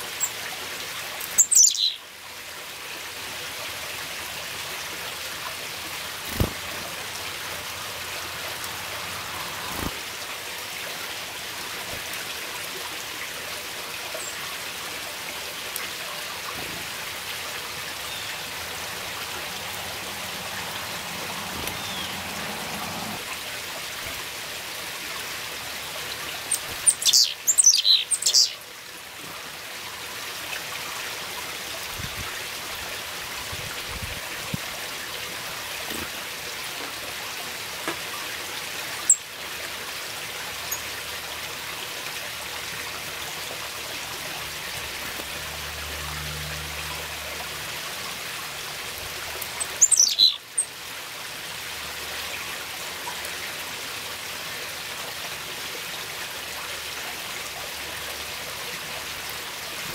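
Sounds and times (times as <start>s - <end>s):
chickadees calling: 1.3s - 2.0s, 20.0s - 23.2s, 26.5s - 28.6s, 49.6s - 50.7s.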